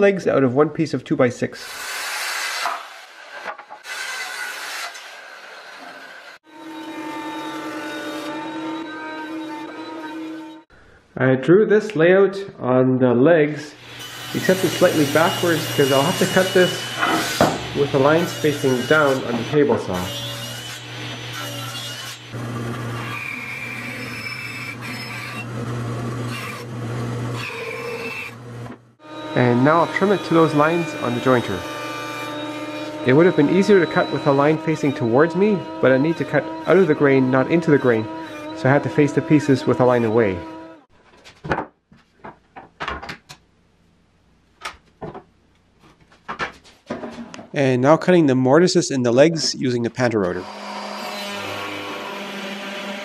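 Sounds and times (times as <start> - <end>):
bandsaw cutting board: 1.6 - 10.6, 13.8 - 40.9, 50.0 - 53.0
table saw ripping board: 14.0 - 20.1
wooden pieces knocking on workbench: 45.0 - 45.3.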